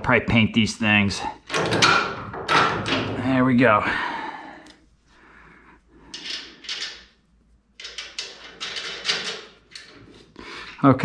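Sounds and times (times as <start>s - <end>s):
bolt and nut scraping: 1.4s - 3.2s, 6.1s - 7.2s, 7.8s - 10.4s.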